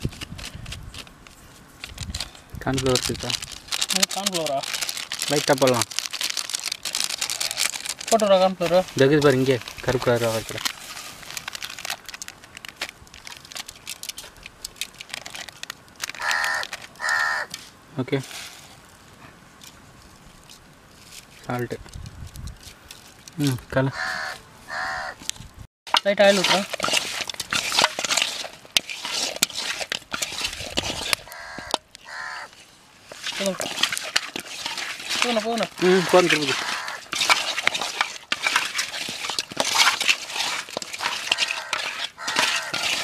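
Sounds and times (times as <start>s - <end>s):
plastic bag crinkling: 0.0s - 17.0s, 25.9s - 31.8s, 33.0s - 43.0s
hands squelching fish in a metal bowl: 25.9s - 43.0s
short calls in background: 35.9s - 37.1s.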